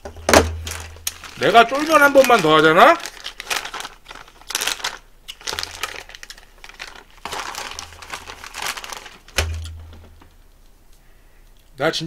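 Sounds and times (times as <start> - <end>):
crisp crunching while chewing: 0.6 - 9.8.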